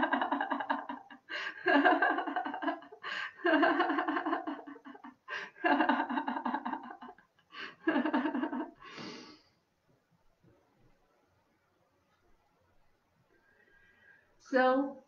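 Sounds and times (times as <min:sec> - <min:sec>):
woman laughing: 0:00.0 - 0:08.8
sharp in-breath: 0:08.8 - 0:09.6.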